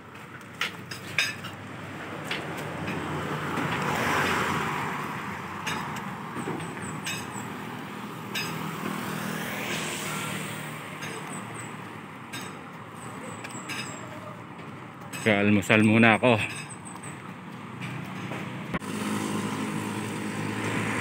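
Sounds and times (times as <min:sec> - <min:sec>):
vehicles passing on highway: 0:00.0 - 0:21.0
sharp clinks: 0:12.3 - 0:14.2.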